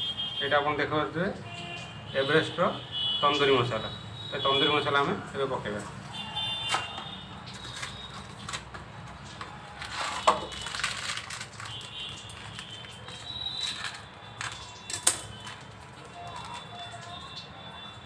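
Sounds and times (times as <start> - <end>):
kitchen clicks and knocks: 13.6 - 15.7.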